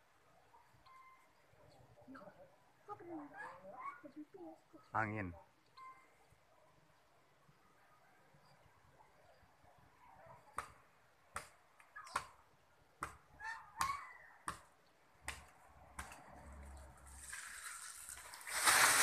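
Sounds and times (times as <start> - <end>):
palm top crashing through fronds: 17.1 - 19.0.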